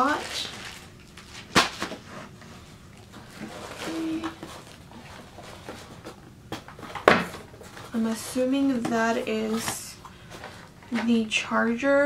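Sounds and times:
cardboard knocking and scraping: 3.2 - 9.8.

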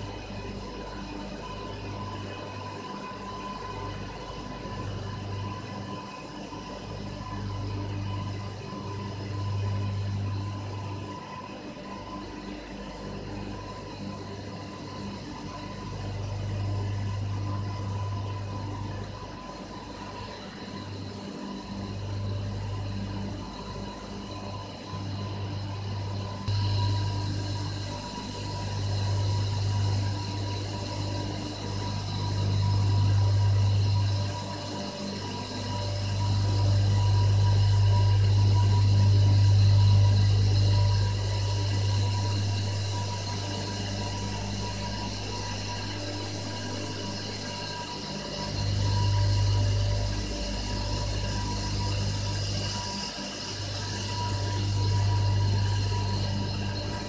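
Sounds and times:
faint steady whines: 0.0 - 57.0
turbine generator deep hum: 25.3 - 34.5, 35.6 - 57.0.

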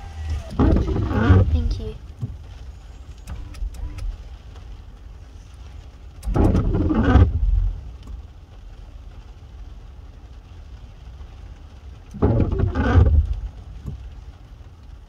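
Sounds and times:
garbage truck engine revving: 0.0 - 1.8, 12.2 - 13.4
steady low rumble: 0.0 - 15.0.

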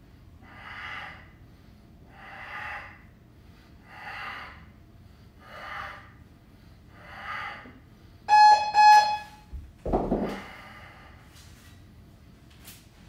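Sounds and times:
electronic timer beeps: 8.3 - 9.4.

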